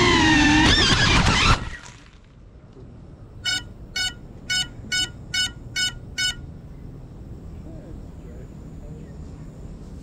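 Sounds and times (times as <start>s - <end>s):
short electronic beeps: 3.4s - 6.4s.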